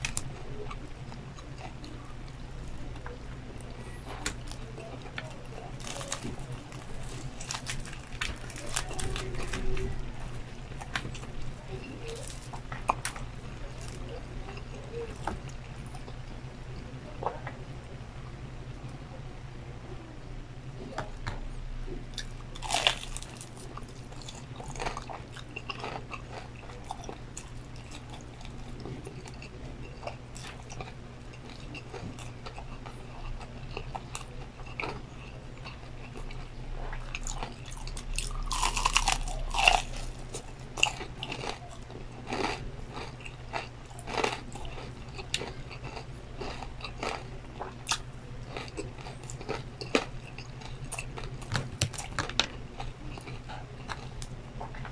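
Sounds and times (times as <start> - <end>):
steady low hum: 0.0 - 54.9
crunching bites and chewing: 22.1 - 54.9.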